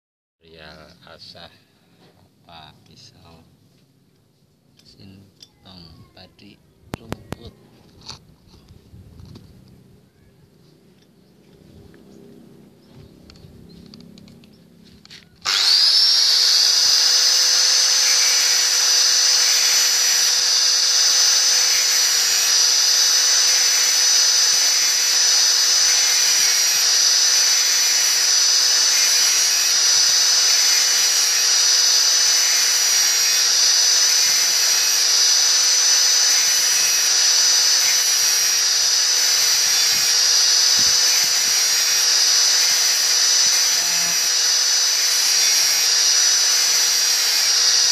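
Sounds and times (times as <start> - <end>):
angle grinder grinding metal: 13.2 - 47.9.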